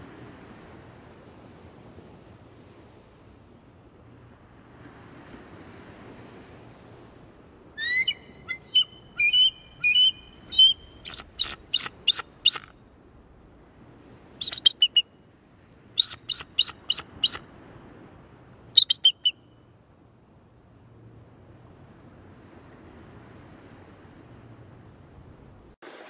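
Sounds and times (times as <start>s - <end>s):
eagle high-pitched chirps: 7.8s - 12.7s, 14.4s - 15.0s, 16.0s - 17.4s, 18.8s - 19.4s.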